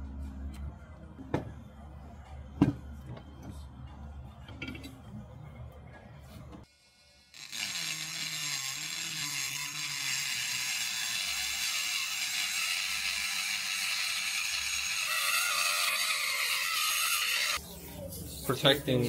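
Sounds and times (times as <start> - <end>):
rotary tool grinding steel: 6.8 - 17.6.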